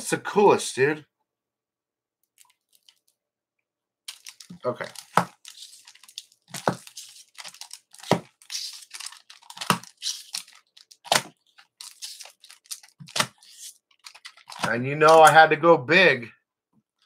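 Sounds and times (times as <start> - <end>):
packaging crackles: 2.4 - 3.1, 4.1 - 15.4
plastic and paper crinkling: 2.4 - 3.1, 4.1 - 15.4.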